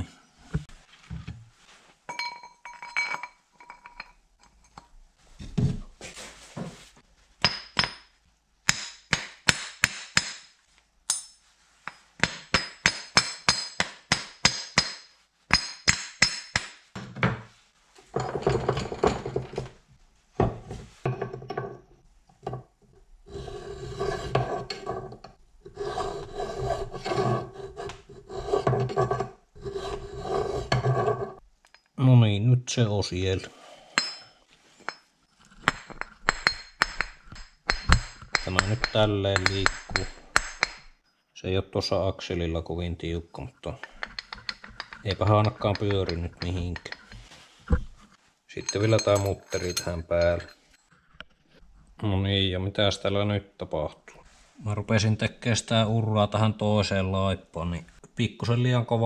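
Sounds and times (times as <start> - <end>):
file rasping on metal: 23.3 - 31.4
rubber mallet tapping metal: 35.7 - 40.9
metal parts clinking: 48.6 - 50.8.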